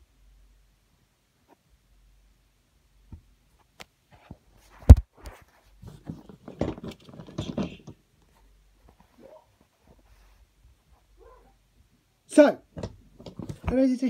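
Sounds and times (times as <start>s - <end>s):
camera rustling and clattering: 3.6s - 10.3s, 12.7s - 13.9s.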